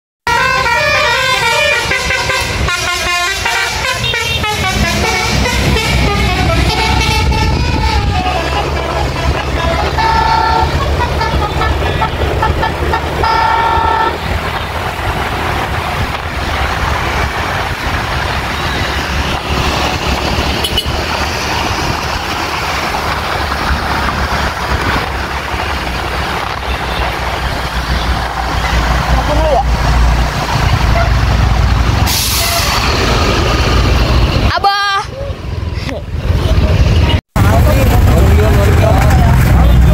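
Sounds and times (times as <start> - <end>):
bus horn playing a tune: 0.2 - 14.3, 18.7 - 21.0, 30.8 - 31.3, 32.1 - 32.8
traffic: 0.2 - 39.9
wind and road noise: 0.2 - 39.9
bus engine rumble: 0.3 - 39.9.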